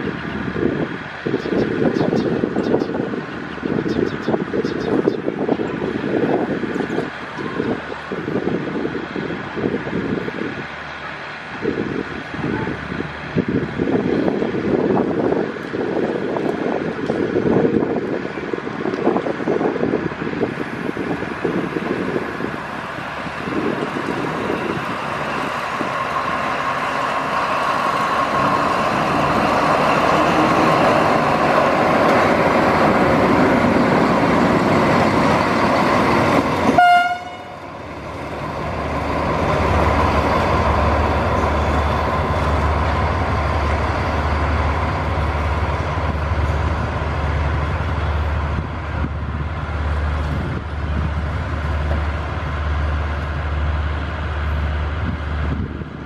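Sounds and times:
locomotive running on track: 0.0 - 56.0
locomotive horn toot: 36.7 - 37.6.

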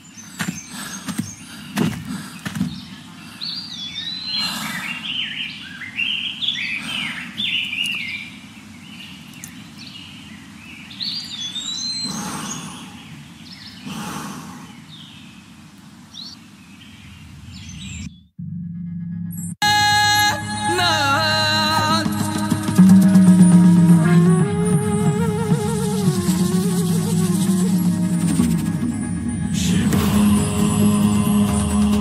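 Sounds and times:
birds chirping and twittering: 0.0 - 18.4.

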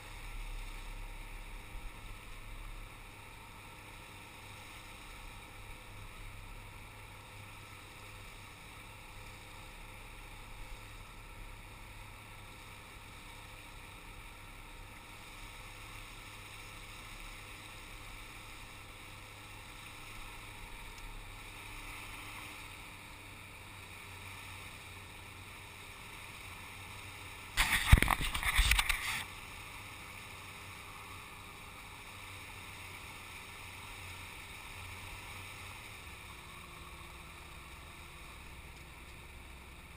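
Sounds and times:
knocks and rubbing noise: 27.6 - 29.2.

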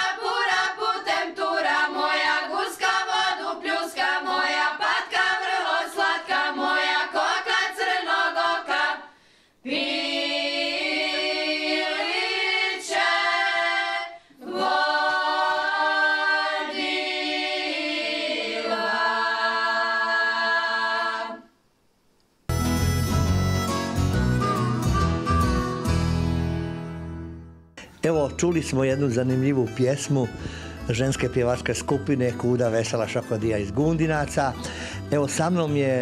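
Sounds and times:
women singing a cappella: 0.0 - 21.6.

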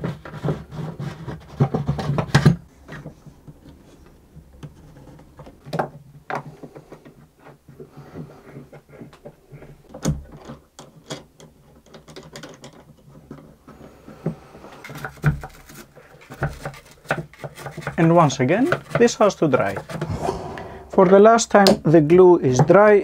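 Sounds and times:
steady low hum: 20.0 - 21.3.

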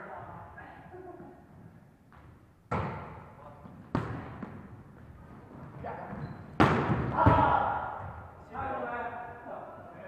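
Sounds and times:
volleyball smacks echoing: 2.7 - 3.3, 6.6 - 8.0.

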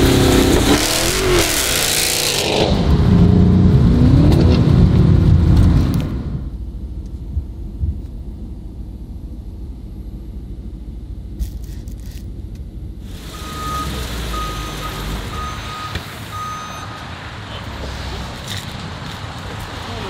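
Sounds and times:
traffic noise: 0.0 - 20.0
car engine idling: 4.9 - 20.0
reversing alarm beeping: 13.2 - 17.0.

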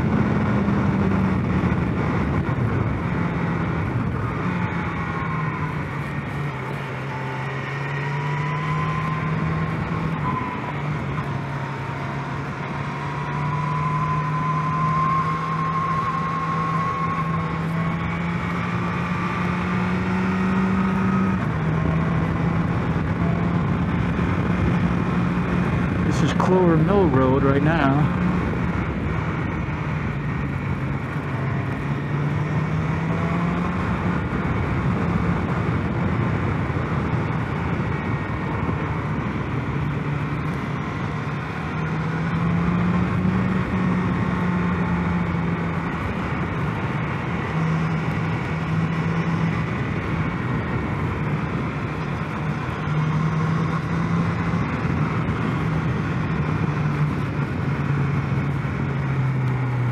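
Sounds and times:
motorcycle engine running: 15.2 - 59.9.

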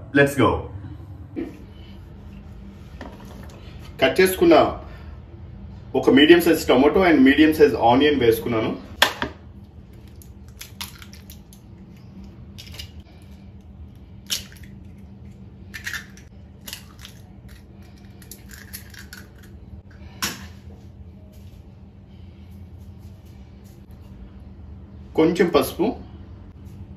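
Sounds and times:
steady low hum: 0.0 - 26.9
eggshells cracking on a bowl: 10.0 - 13.0, 14.2 - 19.6.

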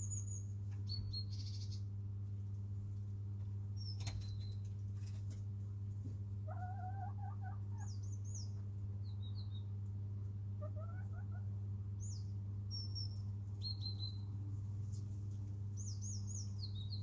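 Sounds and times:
small birds chirping: 0.0 - 2.0, 3.7 - 5.4, 6.5 - 17.0
steady low hum: 0.0 - 17.0
hen trilling softly: 6.4 - 8.6, 10.6 - 11.5.

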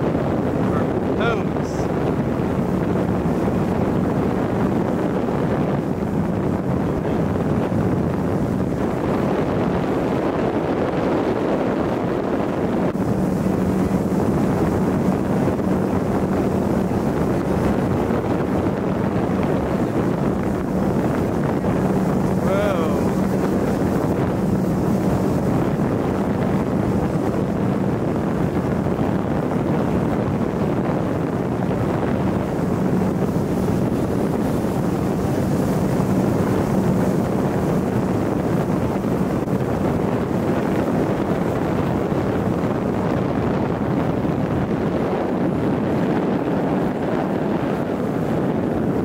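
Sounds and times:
wind buffeting microphone: 0.0 - 49.0.

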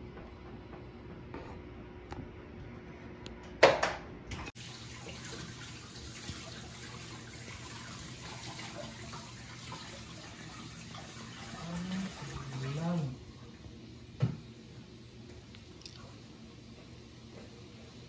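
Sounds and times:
water pouring into aquarium: 4.6 - 13.2.

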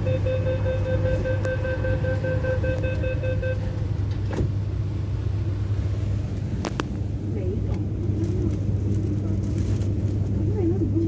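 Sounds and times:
rapid high warning beeps: 0.0 - 3.7
low hum of stopped train: 0.0 - 11.0.

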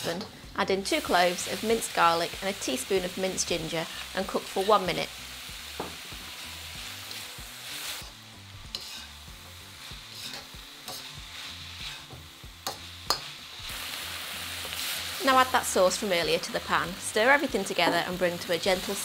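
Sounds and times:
vegetables sizzling in a wok: 0.0 - 19.0
metal spatula stirring: 6.8 - 13.7.

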